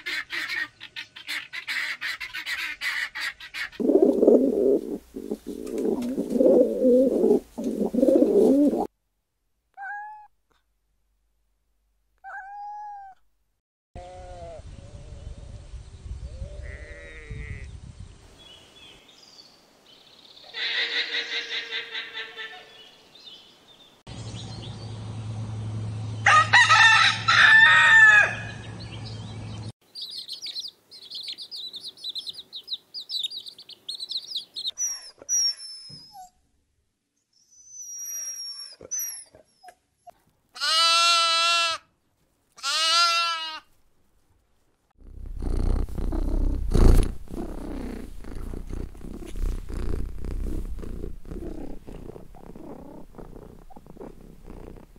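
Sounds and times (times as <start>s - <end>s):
cat purring: 3.8s - 8.9s, 45.0s - 54.9s
pitched animal call: 12.2s - 13.2s, 20.5s - 22.7s, 40.6s - 41.8s, 45.0s - 54.9s
long evenly pitched cries: 40.6s - 41.9s.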